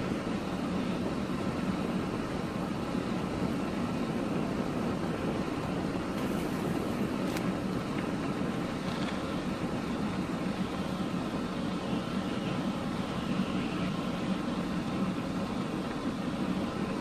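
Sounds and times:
car driving on snow: 0:00.0 - 0:17.0.

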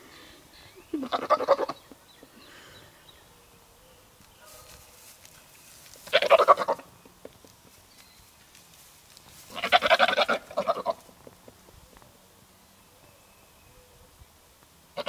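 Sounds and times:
goat bleating: 0:01.0 - 0:01.8, 0:06.0 - 0:06.8, 0:09.5 - 0:11.0.

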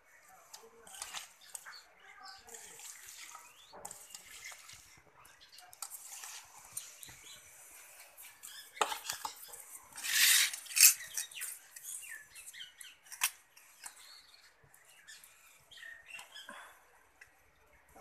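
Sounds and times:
metal spoon scraping steel bowl: 0:00.5 - 0:14.1
rustling scrape: 0:02.4 - 0:05.0, 0:05.8 - 0:12.0.

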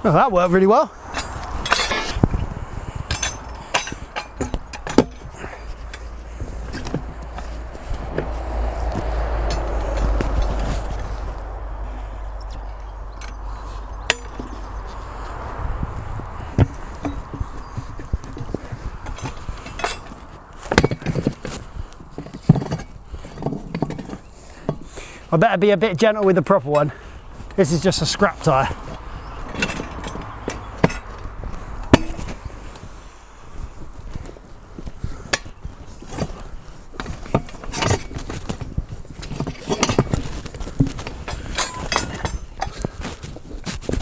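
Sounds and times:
knocks and thumps of tyre handled: 0:01.0 - 0:25.2, 0:26.8 - 0:44.0
metal lever clanking: 0:03.1 - 0:05.3.

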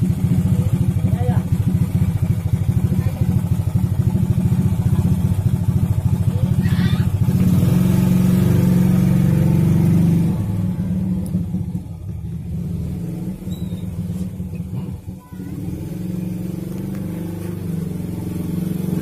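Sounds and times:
vehicle engine humming: 0:00.0 - 0:19.0.

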